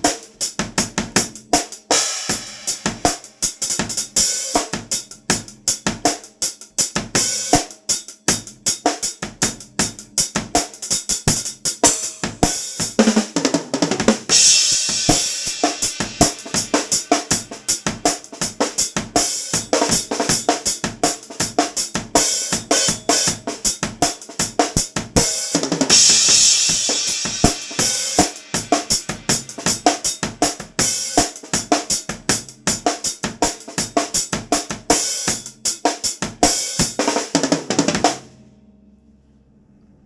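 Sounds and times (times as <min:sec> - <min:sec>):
acoustic drum kit playing: 0:00.0 - 0:38.3.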